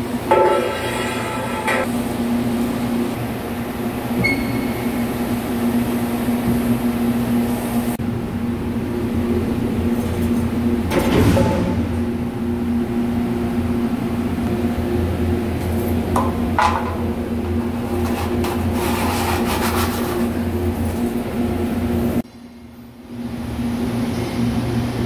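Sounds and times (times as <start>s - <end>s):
steady machine hum: 0.0s - 25.0s
metal scraping and scratching: 17.6s - 20.4s.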